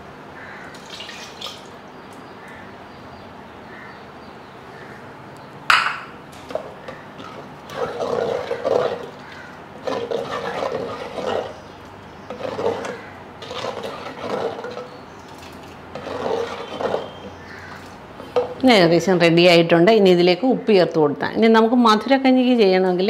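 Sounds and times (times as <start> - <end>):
wooden spoon scraping pot: 6.5 - 18.6.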